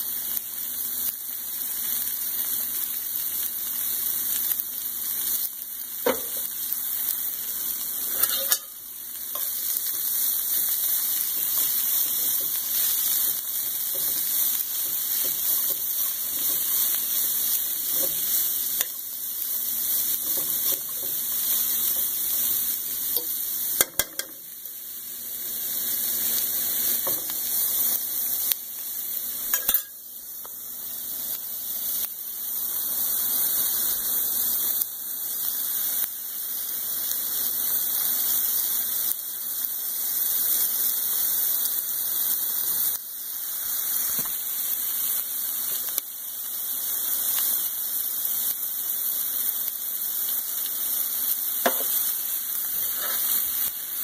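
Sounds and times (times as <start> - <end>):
vegetables sizzling in frying pan: 0.0 - 54.0.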